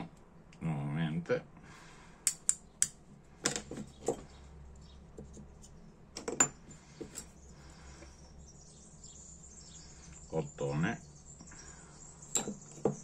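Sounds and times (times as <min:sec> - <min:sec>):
metal hand tools clinking: 0:12.2 - 0:12.9.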